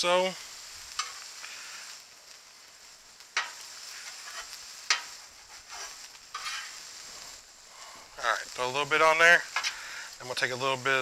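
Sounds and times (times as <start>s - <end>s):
food sizzling on griddle: 0.0s - 11.0s
spatula scraping: 3.4s - 7.4s.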